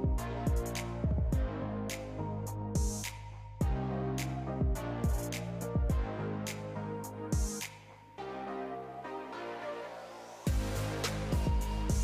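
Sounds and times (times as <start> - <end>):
melodic electronic music: 0.0 - 12.0
deep bass drum hits: 10.5 - 10.8.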